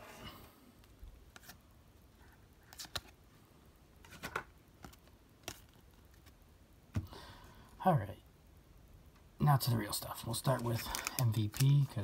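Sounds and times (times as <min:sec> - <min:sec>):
trading cards flipping: 0:01.3 - 0:01.6, 0:02.6 - 0:03.2, 0:04.0 - 0:06.4, 0:10.5 - 0:12.0.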